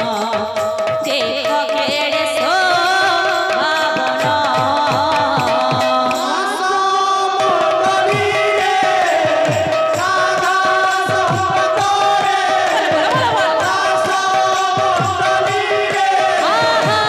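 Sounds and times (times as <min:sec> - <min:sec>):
voices singing: 0:02.0 - 0:17.0
barrel drum beaten: 0:07.5 - 0:17.0
sustained melody: 0:11.1 - 0:17.0.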